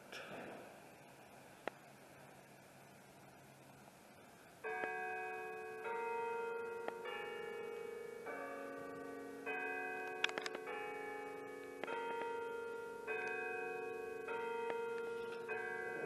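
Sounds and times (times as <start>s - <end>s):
clock chimes bell melody: 4.6s - 16.0s.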